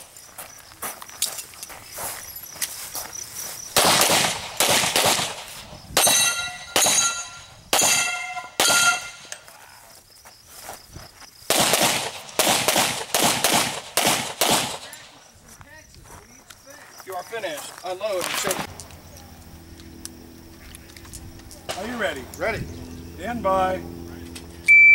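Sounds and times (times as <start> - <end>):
pistol shots: 3.8 - 9.4, 11.5 - 15.2
short metallic ringing: 6.0 - 9.4.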